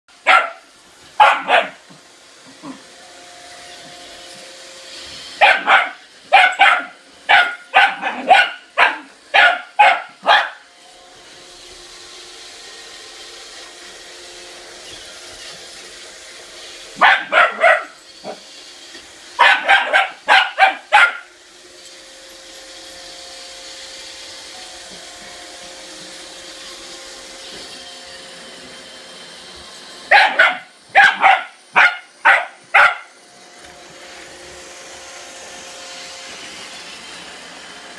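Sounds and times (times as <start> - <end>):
small dog barking: 0.2 - 1.8, 5.4 - 10.6, 17.0 - 18.0, 19.4 - 21.3, 30.1 - 33.1
robot vacuum humming: 0.2 - 37.9.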